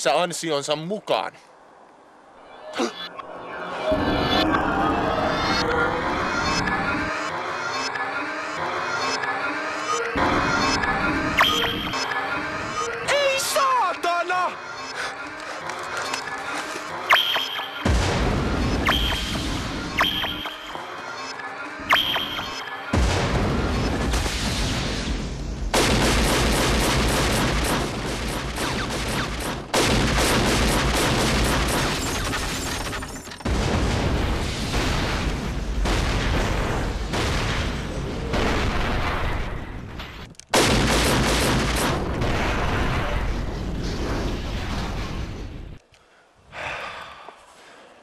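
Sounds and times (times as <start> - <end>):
gunfire: 17.1 - 20.7, 21.9 - 45.0
explosions: 17.8 - 20.6, 21.9 - 45.8.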